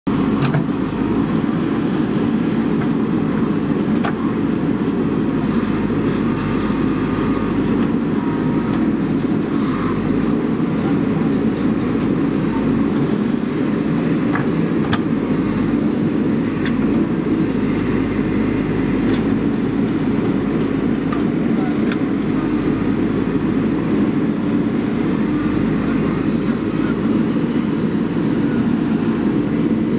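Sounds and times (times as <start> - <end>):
diesel engine running: 0.0 - 29.9.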